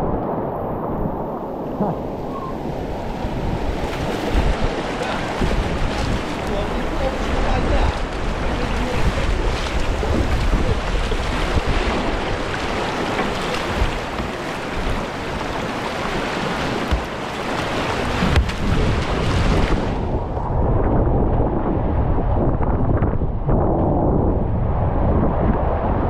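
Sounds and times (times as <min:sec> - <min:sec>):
rushing river water: 0:00.0 - 0:20.3
wind on microphone: 0:00.0 - 0:26.0.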